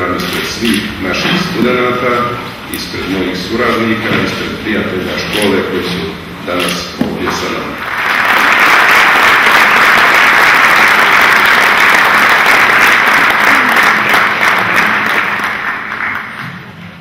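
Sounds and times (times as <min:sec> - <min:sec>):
audience applauding: 0:07.8 - 0:16.8.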